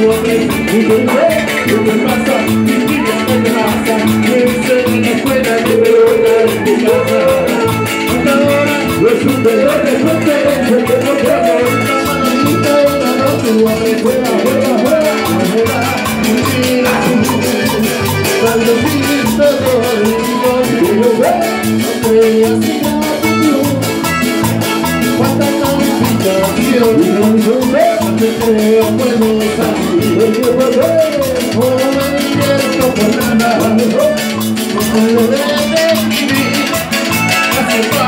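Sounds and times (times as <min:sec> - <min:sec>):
band playing latin dance music: 0:00.0 - 0:38.0
pulsing bass beat: 0:00.0 - 0:38.0.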